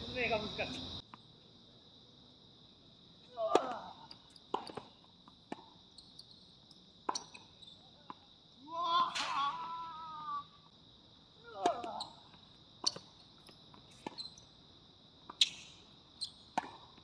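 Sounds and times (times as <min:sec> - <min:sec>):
person shouting: 0:03.3 - 0:04.1, 0:08.6 - 0:10.6
tennis ball hit with rackets: 0:16.5 - 0:16.9.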